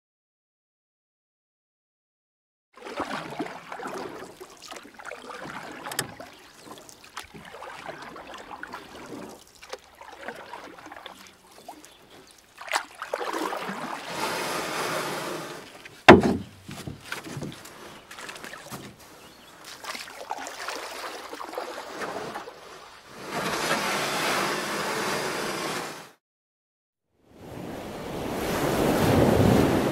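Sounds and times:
water sloshing around boat: 2.8s - 25.8s
gear knocking against boat: 16.0s - 19.1s
loud thump: 16.1s - 17.0s.

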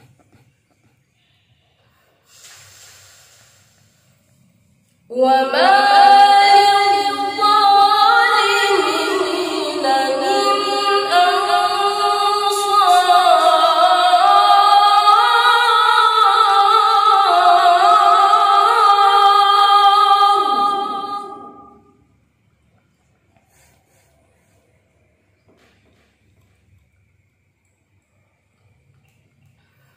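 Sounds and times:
boy reciting melodically: 5.1s - 21.8s.

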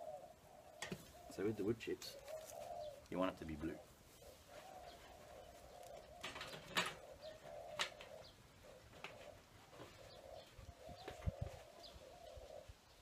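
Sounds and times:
dove cooing: 0.0s - 13.0s
rustling of handled objects: 0.8s - 12.0s.

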